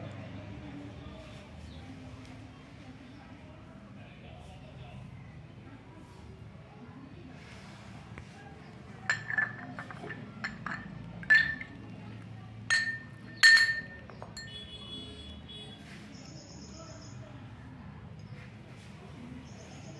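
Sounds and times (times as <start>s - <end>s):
coin clinking against glass: 9.1s - 11.8s, 12.7s - 14.6s.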